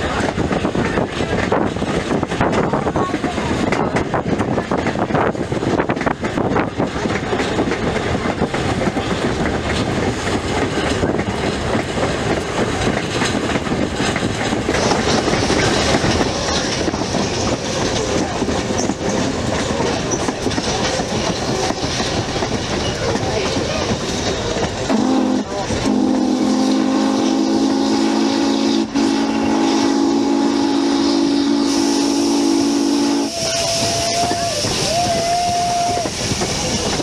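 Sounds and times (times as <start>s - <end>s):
rail clicks: 0.0s - 37.0s
train wheels rumbling on rails: 0.0s - 37.0s.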